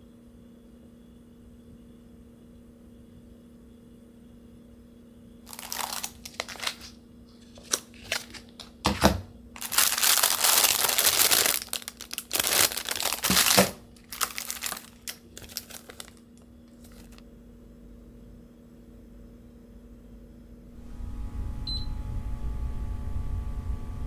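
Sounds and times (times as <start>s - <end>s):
plastic packets crinkling: 5.5s - 17.2s.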